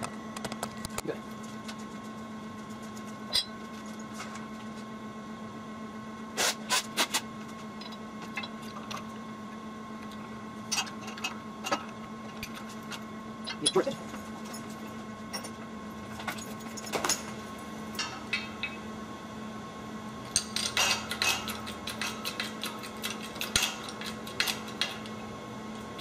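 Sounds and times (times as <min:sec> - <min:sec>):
steady low hum: 0:00.0 - 0:26.0
steel gears clinking on metal: 0:13.5 - 0:14.0.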